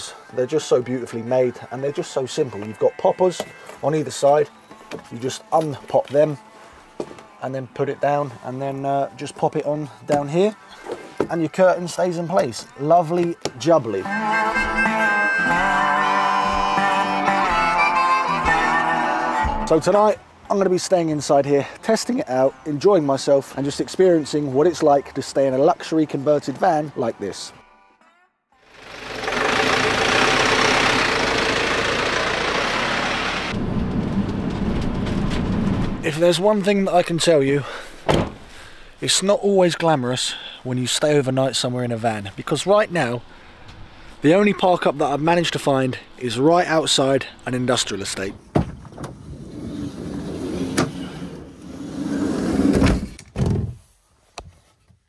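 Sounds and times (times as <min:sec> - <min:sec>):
engine and road noise rushing: 0:28.6 - 0:38.6, 0:42.2 - 0:53.2
low engine rumble: 0:28.7 - 0:36.2
van sliding door thud: 0:38.0 - 0:38.5, 0:48.5 - 0:53.8.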